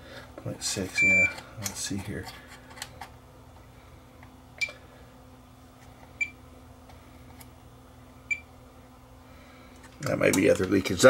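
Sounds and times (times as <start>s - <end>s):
faint steady hum: 0.0s - 11.0s
multimeter high-pitched beeps: 1.0s - 1.4s.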